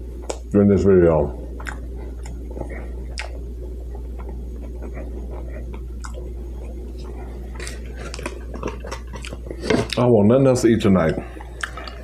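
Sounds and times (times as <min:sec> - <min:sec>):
steady low hum: 0:00.0 - 0:12.0
person chewing food: 0:01.5 - 0:10.1, 0:11.1 - 0:12.0.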